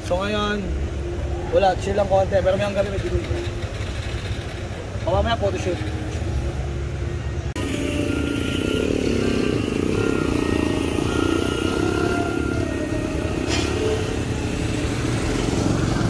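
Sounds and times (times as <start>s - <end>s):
street traffic noise: 0.0s - 16.0s
small motorcycle engine passing: 7.6s - 16.0s.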